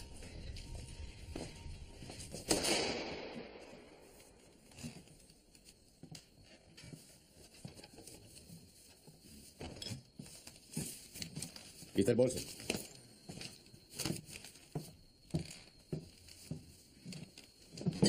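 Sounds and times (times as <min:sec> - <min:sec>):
objects and papers being handled: 0:04.1 - 0:18.0.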